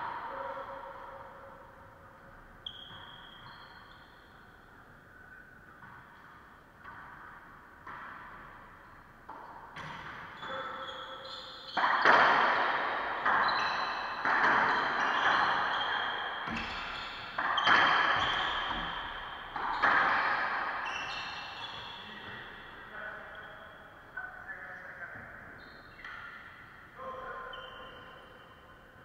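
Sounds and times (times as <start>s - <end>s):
ball hitting racquets and walls: 5.8s - 22.8s.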